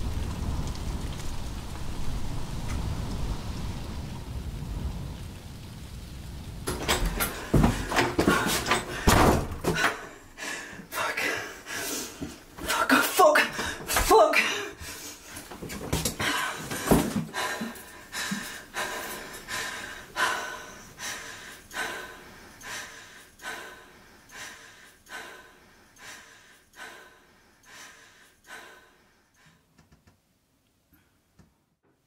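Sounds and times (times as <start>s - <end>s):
dull thump: 6.7s - 9.8s
woman breathing heavily: 6.7s - 29.7s.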